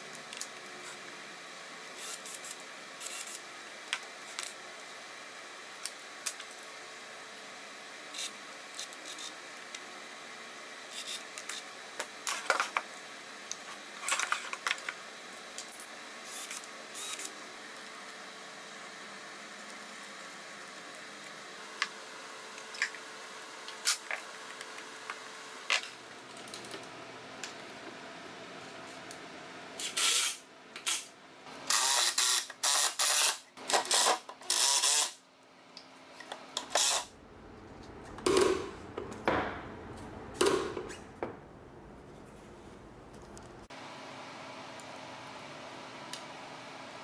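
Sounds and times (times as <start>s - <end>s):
power tool bursts: 31.7s - 35.2s, 36.6s - 37.1s.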